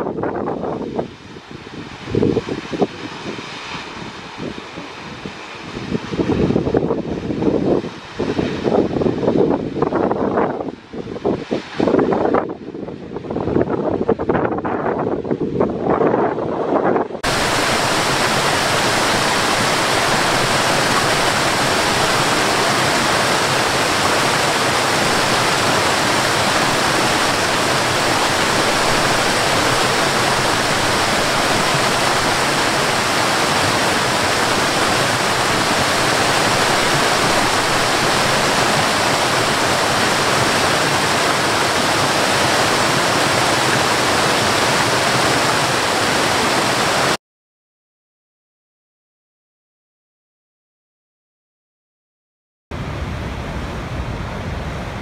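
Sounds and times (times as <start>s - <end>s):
waterfall rushing: 17.2s - 47.2s.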